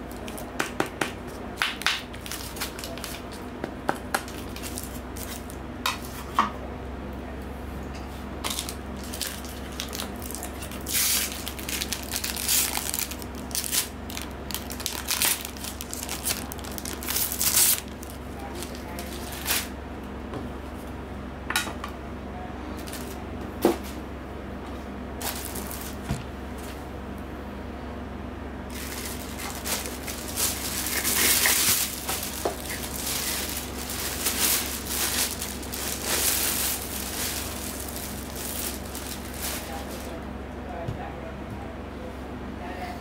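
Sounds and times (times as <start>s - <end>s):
plastic film crinkling: 2.1s - 3.4s, 8.5s - 19.7s, 25.2s - 26.1s, 28.7s - 40.2s.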